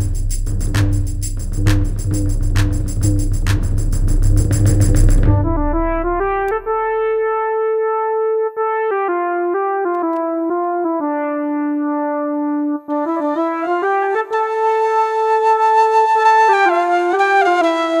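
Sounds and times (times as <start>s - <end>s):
keyboard brass-like melody: 0.0s - 18.0s
flute: 12.8s - 18.0s.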